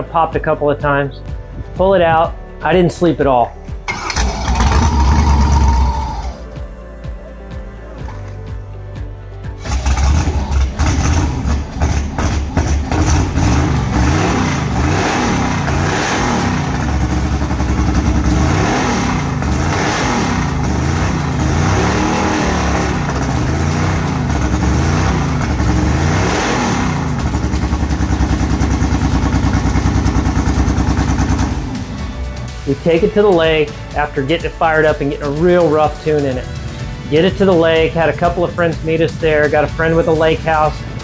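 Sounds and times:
boat engine revving unevenly: 3.9 - 6.5, 9.6 - 32.6.

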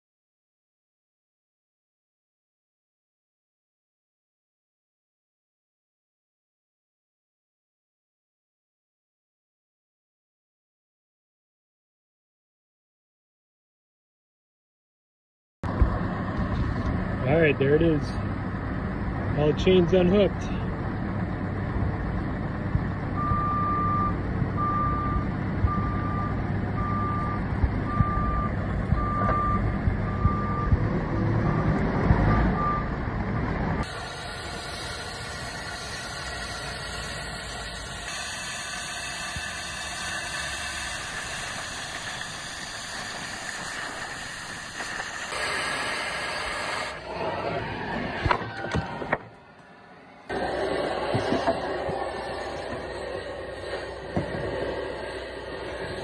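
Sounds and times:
backup alarm beeping: 23.2 - 30.8
machine engine running: 33.8 - 43.2, 50.3 - 56.0
cutting torch hissing: 33.8 - 47.1, 50.3 - 56.0.

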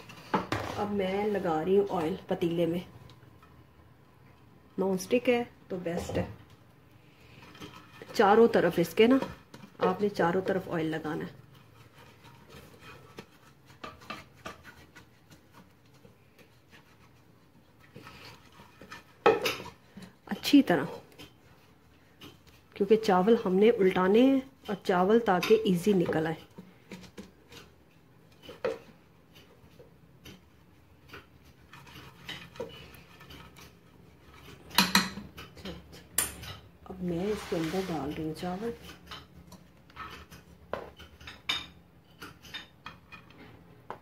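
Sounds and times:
silicone brush spreading oil: 10.0 - 26.6, 36.9 - 39.1.

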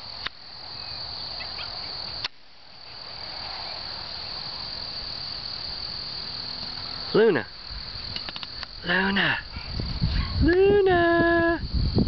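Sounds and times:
crickets chirping: 0.0 - 12.0
sharp clicks: 8.1 - 8.8.

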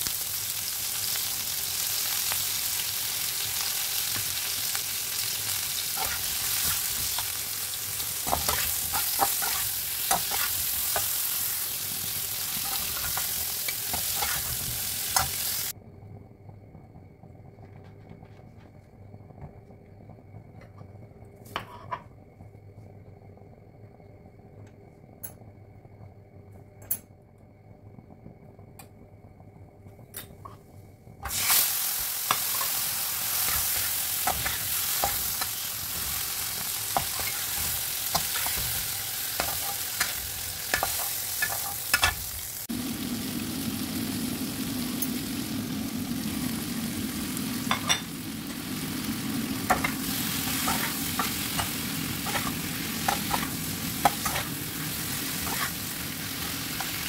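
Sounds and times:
prawns sizzling in hot oil: 0.0 - 15.8, 31.2 - 57.0.

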